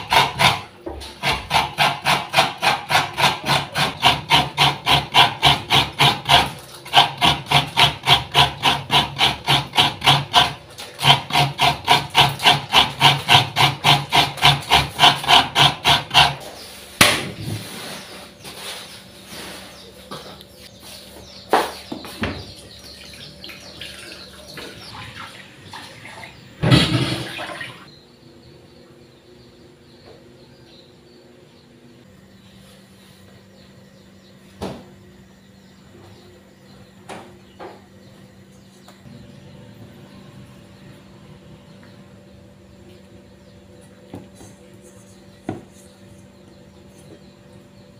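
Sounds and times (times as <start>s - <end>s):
coconut being grated into steel bowl: 0.0s - 16.8s
kitchen noise with knocks: 0.0s - 18.8s, 21.2s - 27.9s, 34.5s - 35.0s, 44.0s - 46.3s.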